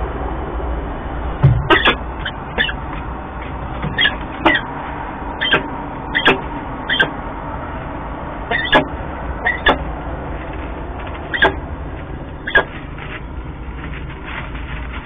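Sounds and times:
low hum: 0.0s - 15.0s
falcon calling: 1.6s - 2.9s, 3.9s - 4.7s, 5.4s - 7.2s, 8.5s - 9.9s, 11.3s - 11.6s, 12.4s - 12.7s.

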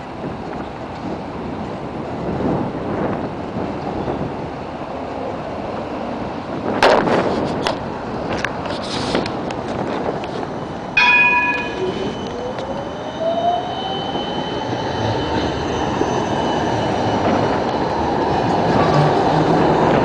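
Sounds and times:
tram electric drive whining: 0.0s - 20.0s
tram rolling on rails: 0.0s - 20.0s
tram bell ringing: 10.6s - 19.4s.

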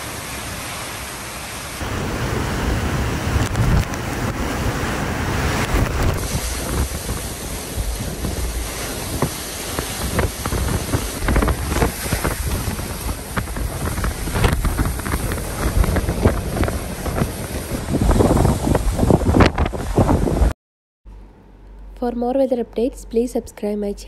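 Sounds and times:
heavy rain: 0.0s - 20.5s
wind gusting on microphone: 1.8s - 20.6s.

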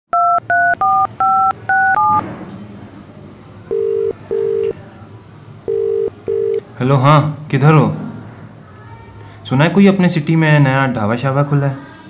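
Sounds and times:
telephone ringback tone: 0.2s - 2.2s, 3.7s - 4.7s, 5.7s - 6.6s
touch-tone keypad beeps: 0.2s - 2.2s.

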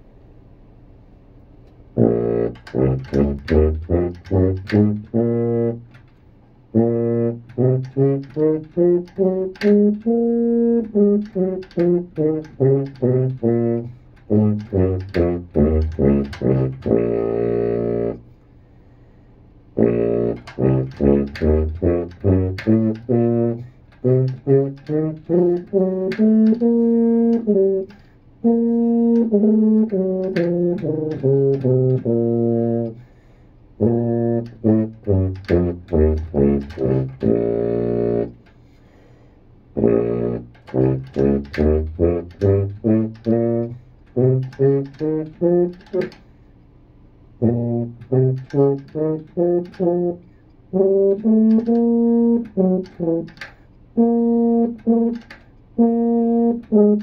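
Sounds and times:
tuba playing scales: 1.9s - 18.5s, 19.6s - 38.8s, 39.7s - 46.5s, 47.2s - 57.0s.

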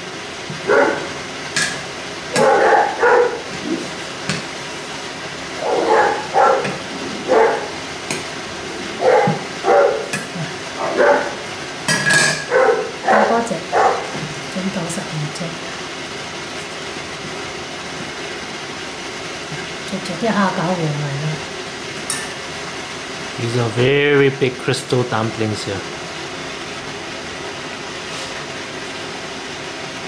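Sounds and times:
dog barking: 0.6s - 1.2s, 2.3s - 3.8s, 5.6s - 7.8s, 9.0s - 10.1s, 10.8s - 11.5s, 12.4s - 14.2s.

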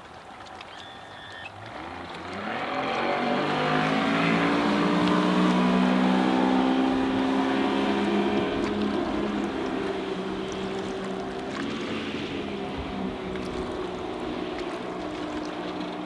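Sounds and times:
outboard engine accelerating: 0.0s - 16.0s.

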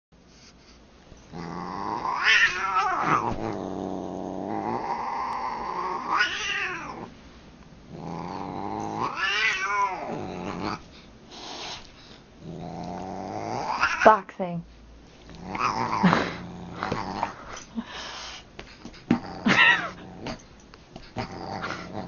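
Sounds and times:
cat growling and yowling: 1.3s - 7.1s, 8.0s - 10.8s, 12.6s - 14.1s, 15.4s - 17.4s.

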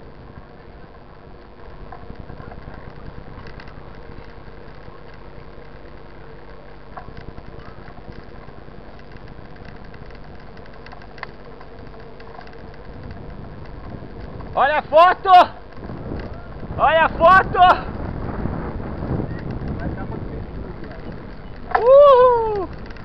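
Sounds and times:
bike tyre hum on asphalt: 0.0s - 23.0s
faint clicks and rattles: 0.0s - 23.0s.

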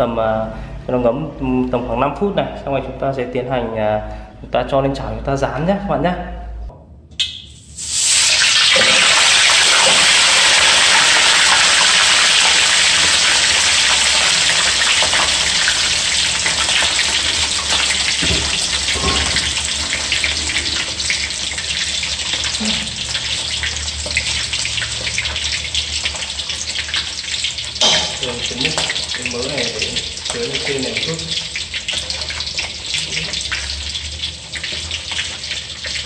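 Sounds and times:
fish sizzling in hot oil: 7.5s - 36.0s.

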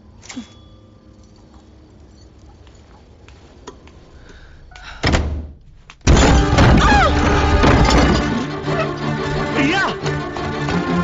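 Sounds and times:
wooden door thudding shut: 5.0s - 8.3s
loud crash: 6.1s - 8.4s.

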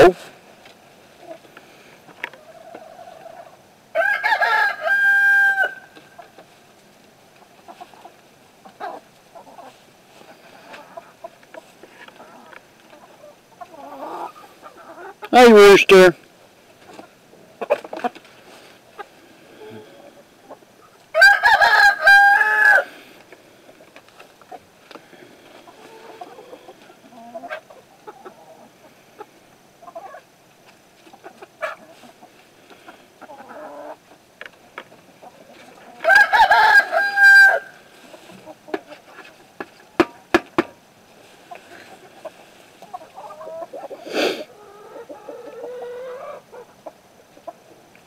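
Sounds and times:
hens clucking quietly: 0.0s - 48.0s
rooster crowing: 3.9s - 6.0s, 21.1s - 23.0s, 36.0s - 37.9s.

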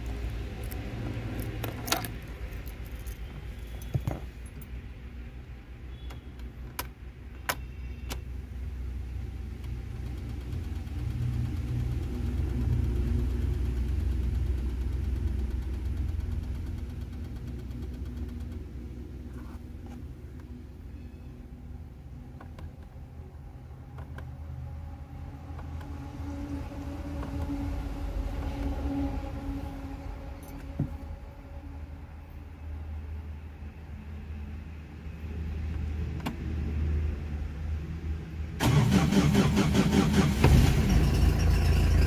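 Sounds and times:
steady low rumble: 0.0s - 5.8s, 8.4s - 38.6s
car keys jingling: 0.6s - 4.7s.

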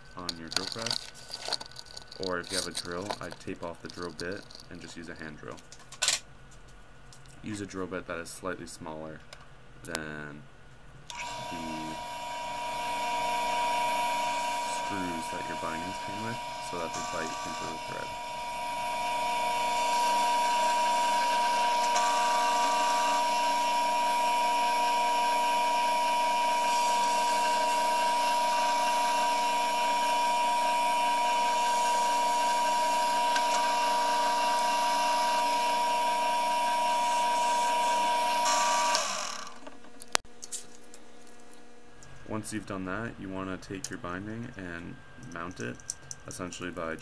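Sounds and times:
drill press whining: 11.1s - 39.8s.

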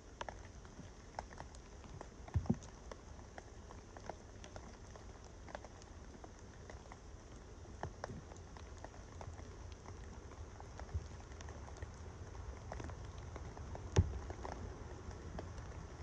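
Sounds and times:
raindrops pattering: 0.0s - 16.0s
wind rumble on microphone: 7.8s - 16.0s.

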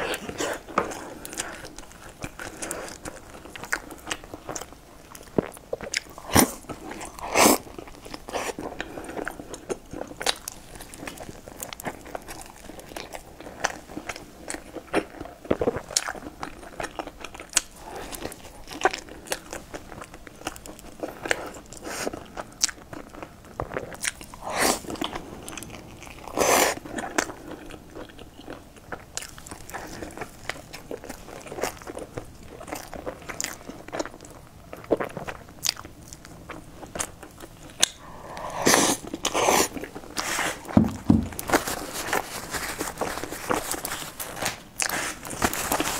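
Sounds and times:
crisp pastry crunching: 0.0s - 38.2s, 38.9s - 45.9s
loud mouth sounds: 37.8s - 41.4s.

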